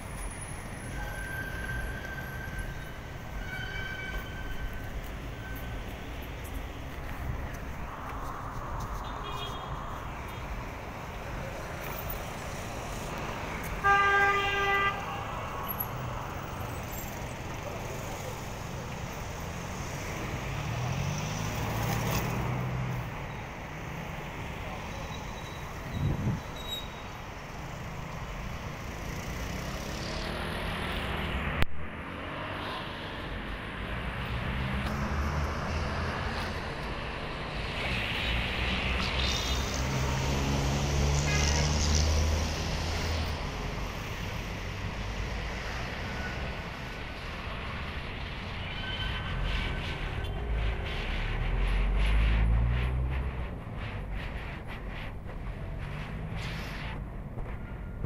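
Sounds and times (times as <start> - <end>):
passing cars: 0.0 - 58.0
traffic hiss: 4.1 - 58.0
vehicle engine drone passing: 28.6 - 48.5, 49.3 - 57.6.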